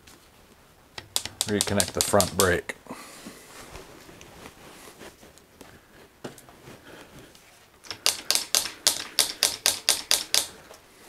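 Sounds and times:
sharp mechanical clicks: 1.0s - 2.6s, 7.8s - 10.6s.

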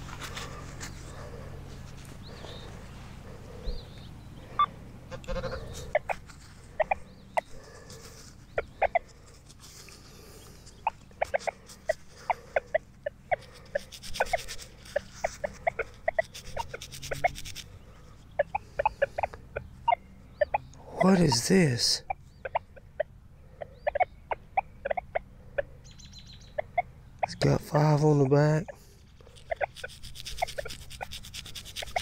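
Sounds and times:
chicken clucking: 4.6s - 9.4s, 10.6s - 17.7s, 18.3s - 25.8s, 26.4s - 32.0s.

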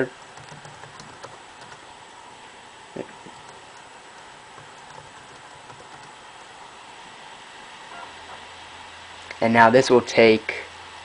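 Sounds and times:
faint steady hiss: 0.0s - 11.0s
computer keyboard clicks: 0.2s - 1.8s, 3.3s - 3.9s, 4.5s - 6.5s.

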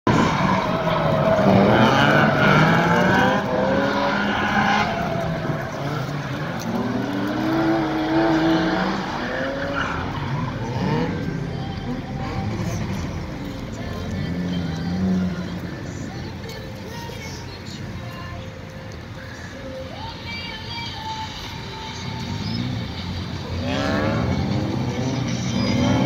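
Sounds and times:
car engine revving: 0.0s - 16.1s, 22.1s - 26.0s
tyres skidding on asphalt: 0.1s - 26.0s.

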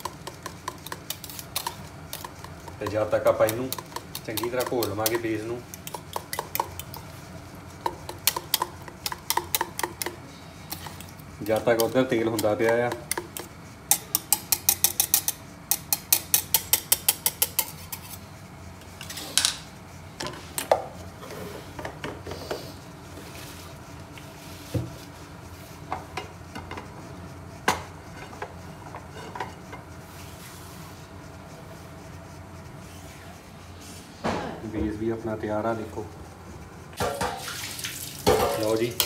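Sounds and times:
cutlery beating eggs in a dish: 0.0s - 18.2s.

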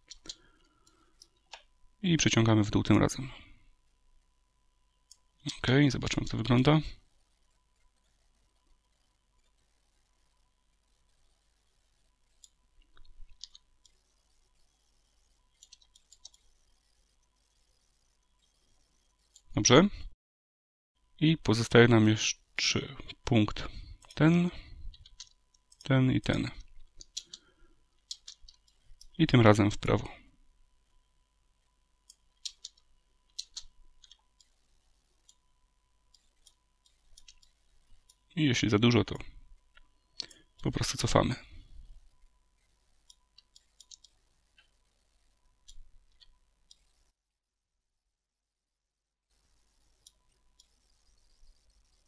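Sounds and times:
computer mouse and keyboard clicks: 12.3s - 19.5s, 24.9s - 29.2s, 32.1s - 35.4s, 36.1s - 38.2s, 42.0s - 44.8s, 45.6s - 47.0s
mouse and keyboard clicks: 28.0s - 29.1s, 32.4s - 34.2s.

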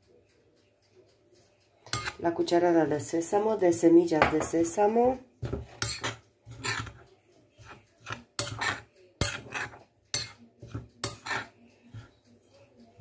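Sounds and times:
spoon clinking against glass bowl: 1.9s - 2.3s, 5.4s - 7.0s, 7.6s - 12.2s.

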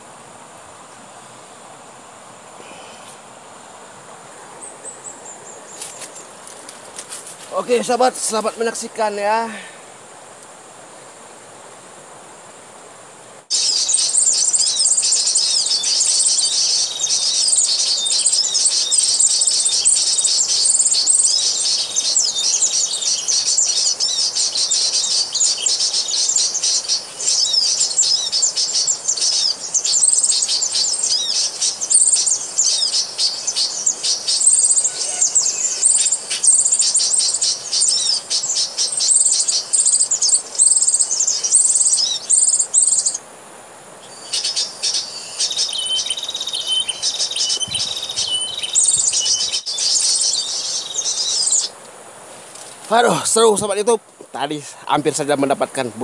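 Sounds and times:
recorded bird chirping from speaker: 44.1s - 51.7s.

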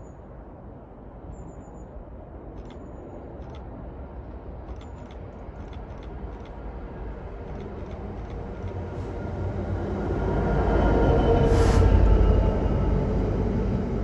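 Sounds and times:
diesel locomotive rumble: 3.4s - 14.0s.

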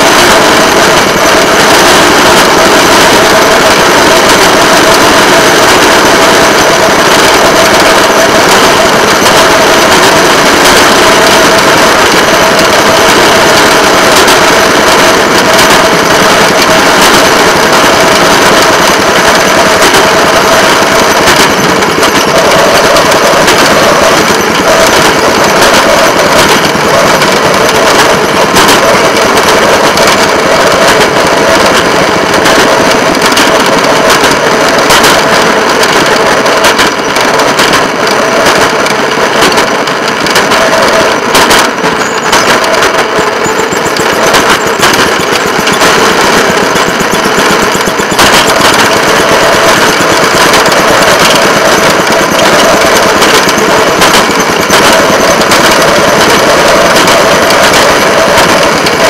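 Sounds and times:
rail motorcar rattling: 0.0s - 59.0s.

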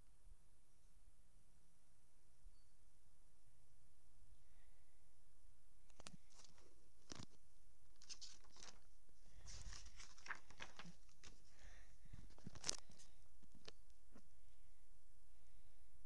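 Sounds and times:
book pages rustling: 5.9s - 14.2s.

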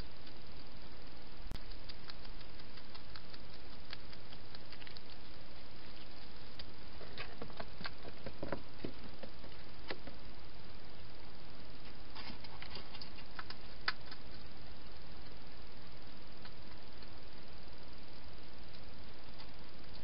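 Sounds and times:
hedgehogs foraging and eating: 0.0s - 20.0s
steady hiss: 0.0s - 20.0s.

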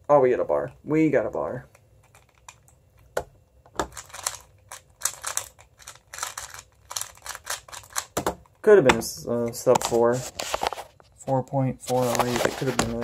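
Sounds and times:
speed cube plastic clicking: 3.8s - 8.2s.

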